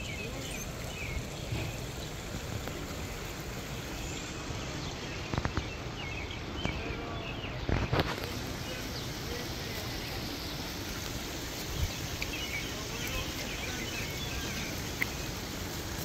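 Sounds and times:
faint bird chirps: 0:00.0 - 0:02.1
background hiss: 0:00.0 - 0:16.0.

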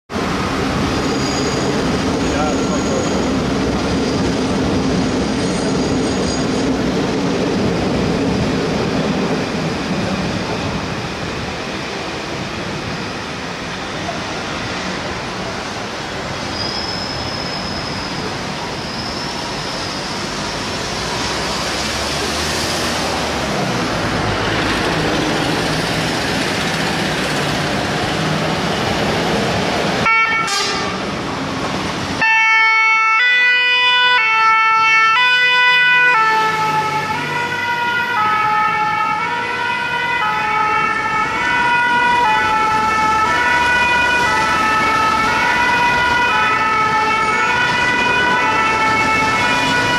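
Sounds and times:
fire engine revving: 0:19.6 - 0:32.2, 0:33.6 - 0:49.9
two-tone siren: 0:30.0 - 0:31.0, 0:32.2 - 0:49.9.

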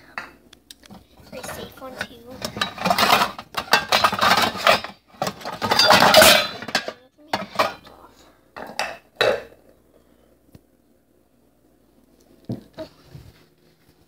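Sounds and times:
pots and pans clattering: 0:01.2 - 0:07.9, 0:08.6 - 0:09.6.

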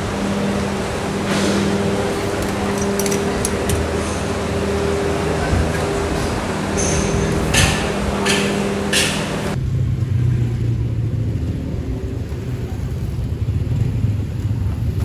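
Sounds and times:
steady hum: 0:00.0 - 0:09.7
street traffic rumble: 0:00.0 - 0:15.0
indoor clatter: 0:01.6 - 0:04.8.

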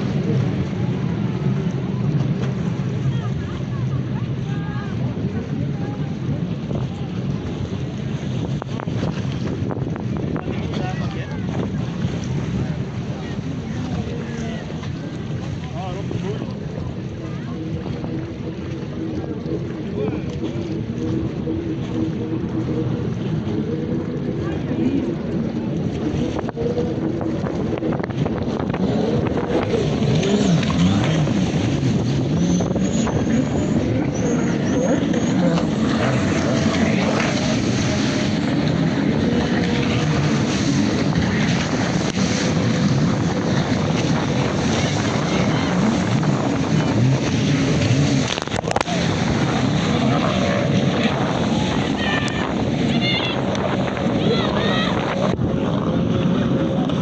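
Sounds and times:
jet ski engines: 0:00.0 - 0:57.0
wind buffeting microphone: 0:00.0 - 0:57.0.

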